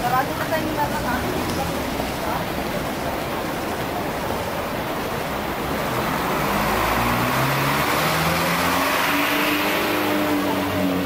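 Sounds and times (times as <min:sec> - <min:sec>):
city street traffic: 0:00.0 - 0:11.0
vehicle drone rising in pitch: 0:05.9 - 0:11.0.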